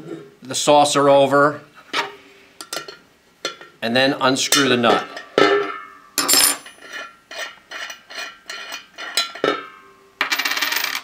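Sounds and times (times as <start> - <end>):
metal saucer ringing: 4.5 - 6.8
wrench clinking on metal: 4.5 - 11.0.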